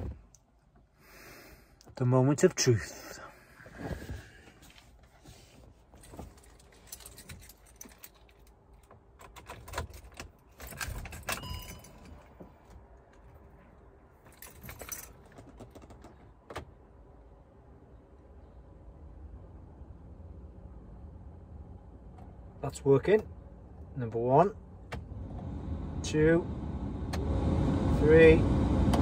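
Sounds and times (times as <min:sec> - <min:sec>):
keys jangling: 0:06.3 - 0:12.2, 0:14.3 - 0:15.6.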